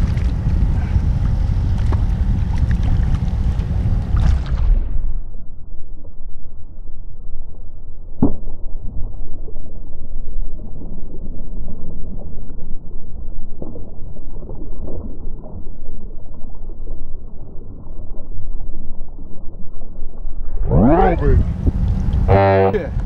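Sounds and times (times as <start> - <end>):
water splashes: 0.0 - 4.8, 8.3 - 23.0
wind noise on microphone: 0.0 - 5.3, 20.4 - 23.0
water noise: 0.0 - 23.0.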